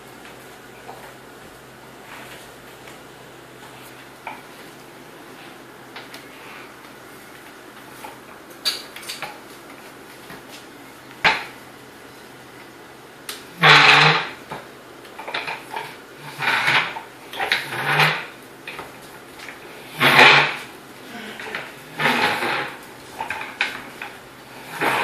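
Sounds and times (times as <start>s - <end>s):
plastic wheels rolling on tile: 13.6s - 20.7s, 21.4s - 25.0s.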